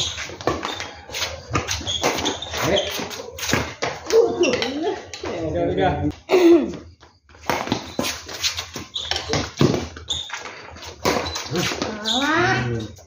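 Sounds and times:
quick footsteps and shoe scuffs: 0:00.0 - 0:04.5, 0:06.9 - 0:12.0
shoe squeaks: 0:00.0 - 0:05.1, 0:07.4 - 0:13.0.

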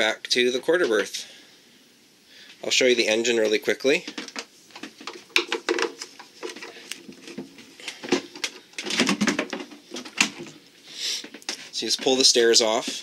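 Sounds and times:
wooden steps clicking and knocking: 0:04.0 - 0:10.6.

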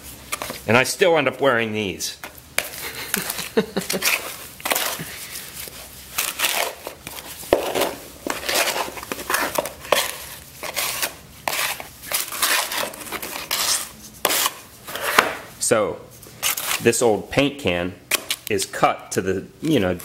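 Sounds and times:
trowel scraping wet concrete in can: 0:04.0 - 0:05.1, 0:06.2 - 0:15.2, 0:16.4 - 0:16.9.

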